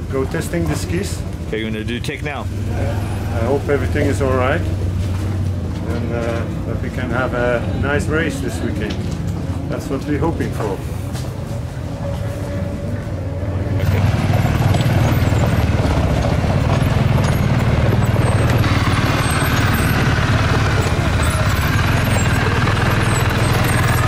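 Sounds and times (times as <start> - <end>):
quad bike engine running: 0.1 - 8.3, 13.1 - 24.0.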